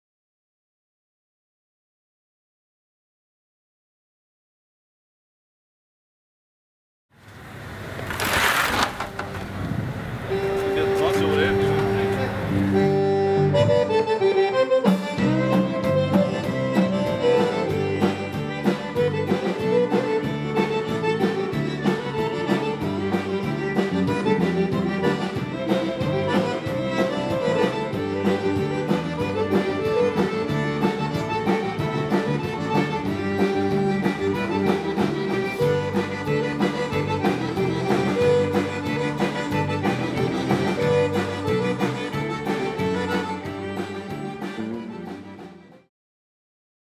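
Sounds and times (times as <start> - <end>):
button accordion: 10.3 - 45.9
steady drum beat: 14.9 - 45.8.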